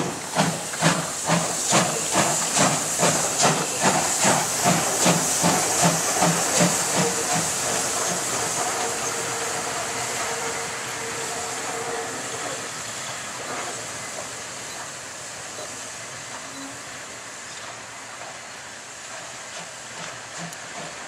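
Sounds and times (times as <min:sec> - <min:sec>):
steam hiss: 0:00.0 - 0:21.0
steam locomotive exhaust chuffs: 0:00.0 - 0:21.0
train rolling rumble: 0:00.0 - 0:21.0.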